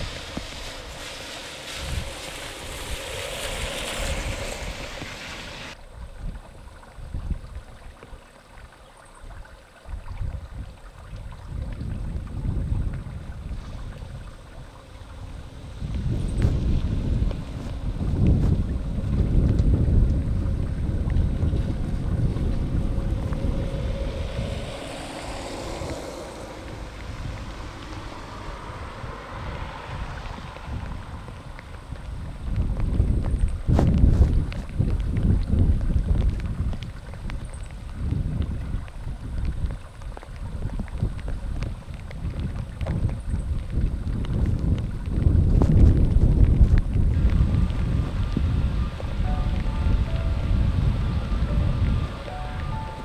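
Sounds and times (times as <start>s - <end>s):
distant jet engines: 0.0s - 5.8s, 12.2s - 35.1s, 44.8s - 53.0s
jet engine and spray hiss: 0.0s - 5.8s, 23.4s - 30.4s
wind gusting on microphone: 0.0s - 8.0s, 9.3s - 53.0s
faint steady high tone: 48.8s - 53.0s.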